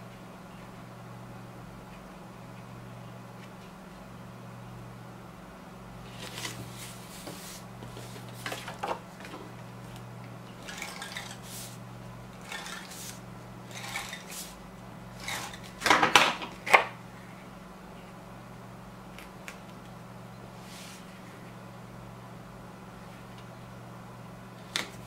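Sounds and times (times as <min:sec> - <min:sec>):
low electrical hum: 0:00.0 - 0:25.0
paper rustling and scraping: 0:06.0 - 0:09.5, 0:10.6 - 0:11.8, 0:12.4 - 0:14.6.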